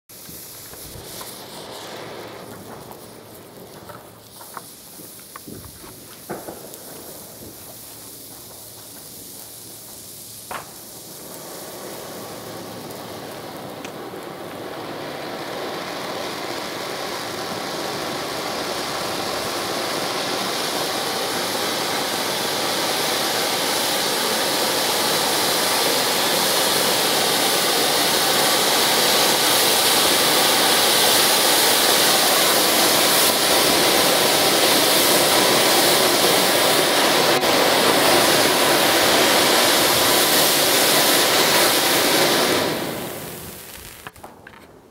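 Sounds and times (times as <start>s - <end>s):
firework fountain hissing: 0.0s - 44.9s
sharp pops: 0.1s - 11.7s, 36.7s - 44.8s
sharp crack: 0.1s - 14.4s, 28.5s - 44.9s.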